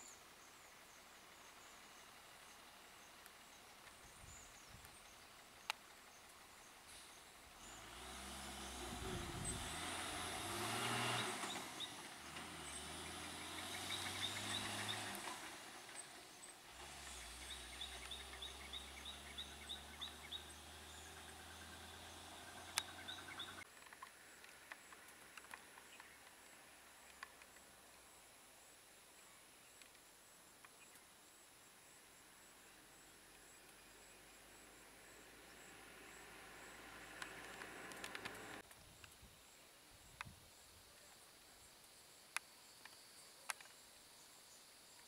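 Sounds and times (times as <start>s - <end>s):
truck diesel engine pulling away: 6.9s - 23.7s, 34.7s - 38.6s.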